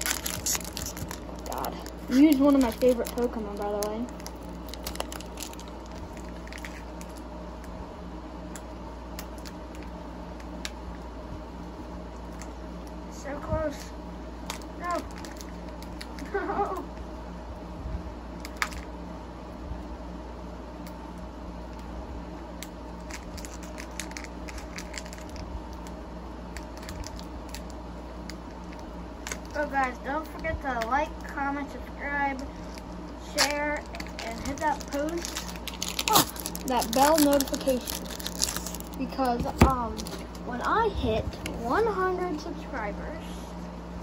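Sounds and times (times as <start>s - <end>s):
foil wrapper crinkling: 0.0s - 7.3s, 14.5s - 16.4s, 23.0s - 27.8s, 28.5s - 29.9s, 32.4s - 40.5s
steady low hum: 0.0s - 44.0s.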